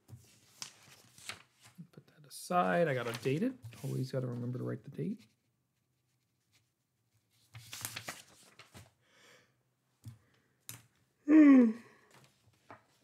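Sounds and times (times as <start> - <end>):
paper rustling: 0.1 - 1.8, 2.8 - 4.5, 6.4 - 9.0, 12.1 - 13.0
person yawning: 11.2 - 12.1.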